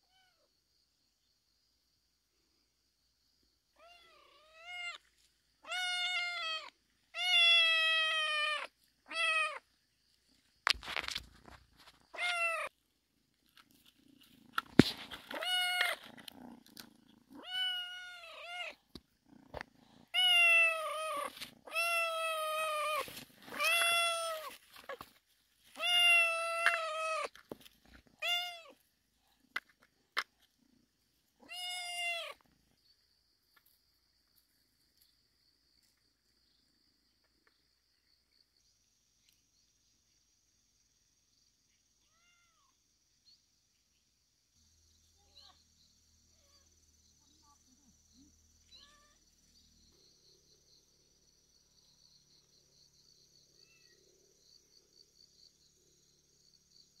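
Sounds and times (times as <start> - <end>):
kitten meowing: 12.1 - 12.7, 17.4 - 18.8, 20.1 - 24.6.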